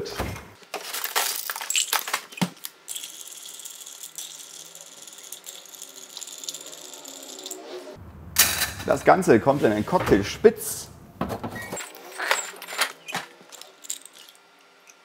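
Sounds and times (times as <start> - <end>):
bar spoon stirring ice: 2.9 - 7.6
ice cubes clinking into glass: 2.9 - 7.6.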